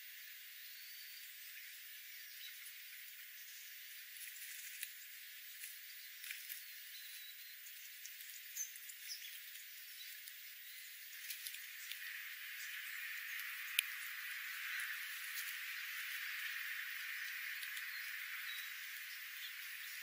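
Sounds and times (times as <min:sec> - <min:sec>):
faint steady hiss: 0:00.0 - 0:20.0
birds pecking birdseed: 0:00.7 - 0:20.0
high bird chirps: 0:05.9 - 0:20.0.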